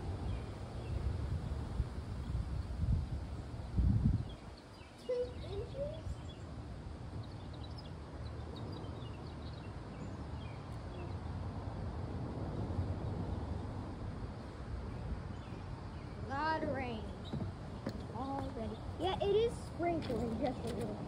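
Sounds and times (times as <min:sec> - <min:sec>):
birds chirping: 0:03.3 - 0:11.5, 0:14.4 - 0:21.0.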